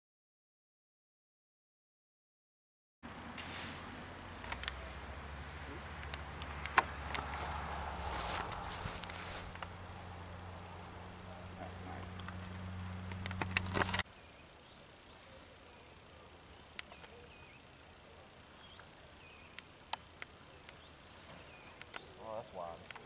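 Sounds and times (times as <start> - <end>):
insects chirping: 3.0 - 23.0
sharp clicks: 4.4 - 4.9, 6.0 - 9.8, 12.0 - 14.0, 21.8 - 22.1, 22.8 - 23.0.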